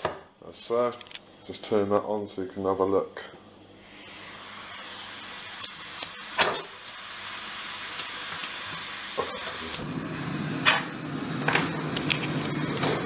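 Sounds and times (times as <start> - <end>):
gas stove hissing: 2.7 - 13.0
flame rushing: 3.8 - 13.0.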